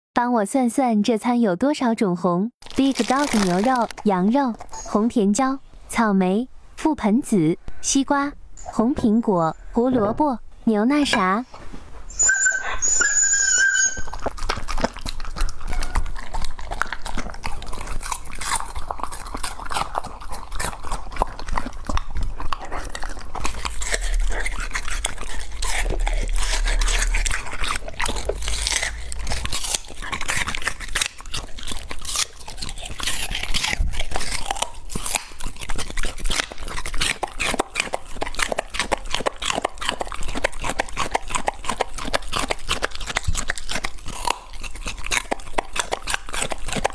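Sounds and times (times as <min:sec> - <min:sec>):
dog crunching and chewing: 0:02.6 - 0:05.1, 0:12.1 - 0:46.9.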